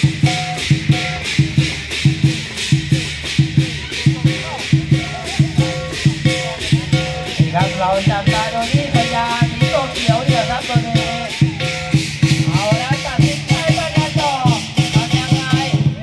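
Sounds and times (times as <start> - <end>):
cymbal crashes: 0.0 - 16.0
low drum beat: 0.0 - 16.0
pitched melody line: 3.6 - 15.8.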